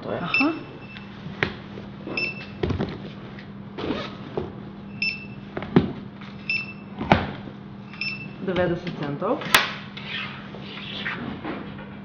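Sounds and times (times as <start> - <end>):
barcode scanner beeps: 0.3 - 1.1, 2.1 - 2.6, 4.9 - 5.4, 6.4 - 6.9, 7.9 - 8.5.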